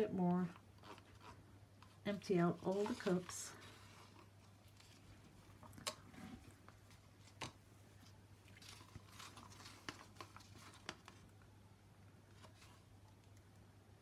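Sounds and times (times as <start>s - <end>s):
low steady hum: 0.0s - 14.0s
stick scraping plastic cups: 0.4s - 5.0s.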